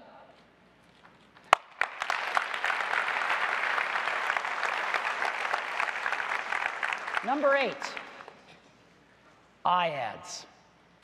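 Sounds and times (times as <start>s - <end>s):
audience applauding: 1.5s - 8.5s.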